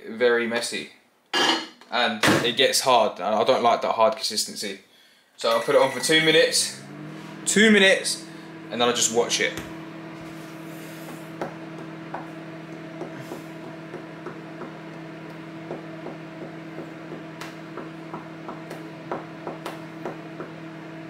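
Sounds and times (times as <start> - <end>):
microwave oven humming: 5.4 - 21.0.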